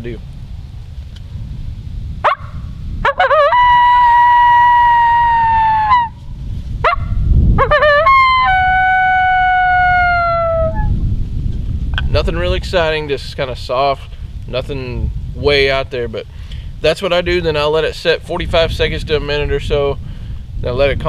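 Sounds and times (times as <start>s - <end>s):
howler call imitating coyote howls: 2.2s - 6.2s, 6.8s - 11.0s.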